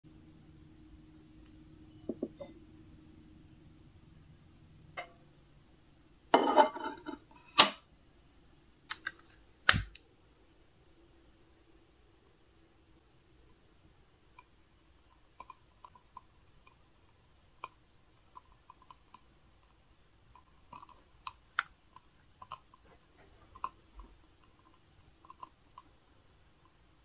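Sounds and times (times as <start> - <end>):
lighter clicks and crackles: 8.9 - 10.0.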